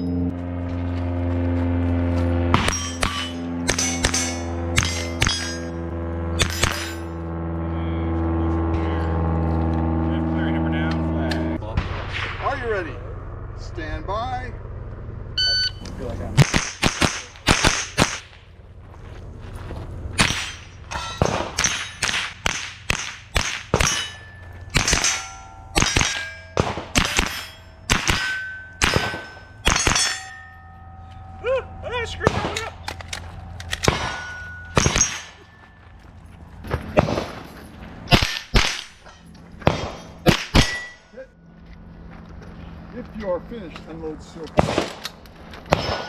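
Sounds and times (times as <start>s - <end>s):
steel target ringing: 2.5s - 7.4s, 20.2s - 36.1s, 38.1s - 41.4s, 45.7s - 46.0s
rifle shots: 16.4s - 18.5s, 20.2s - 30.3s, 32.2s - 35.6s, 36.9s - 37.4s, 38.1s - 41.0s, 44.6s - 46.0s.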